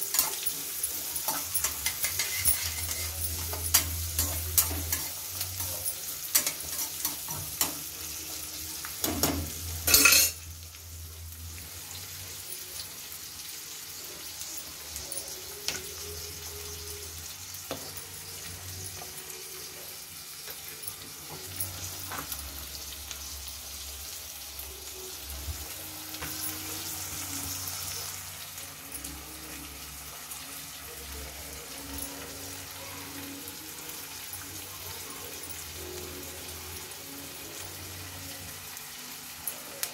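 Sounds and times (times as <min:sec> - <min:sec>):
metal spatula scraping pan: 0:00.0 - 0:07.8
onions sizzling in oil: 0:00.0 - 0:39.9.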